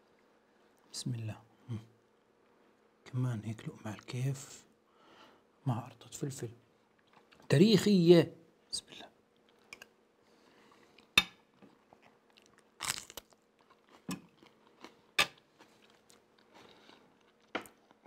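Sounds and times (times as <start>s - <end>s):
man chewing: 9.3s - 18.0s
crunching bites: 12.3s - 16.6s.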